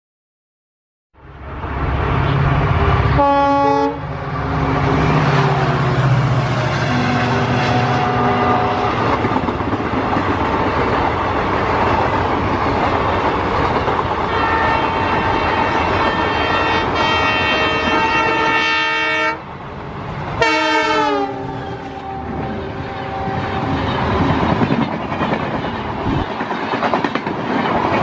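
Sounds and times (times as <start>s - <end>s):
locomotive horn: 3.1s - 4.2s, 5.0s - 9.2s, 14.3s - 19.5s, 20.4s - 23.8s
locomotive engine running: 3.9s - 14.3s
wheel and track noise: 4.1s - 18.5s, 21.3s - 28.0s.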